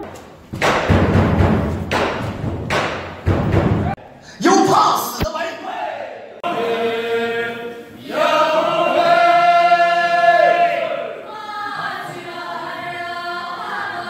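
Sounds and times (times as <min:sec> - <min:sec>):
voices chanting in chorus: 0:05.6 - 0:14.0.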